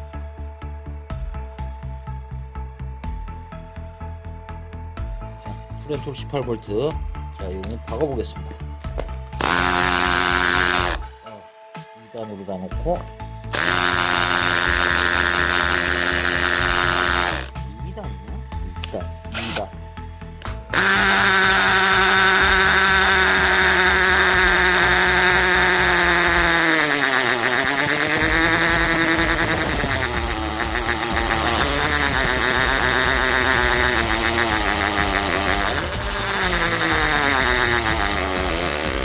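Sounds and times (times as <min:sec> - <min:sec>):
hammer drill boring into concrete: 0:08.9 - 0:11.1, 0:13.5 - 0:17.6, 0:19.3 - 0:19.8, 0:20.7 - 0:39.0.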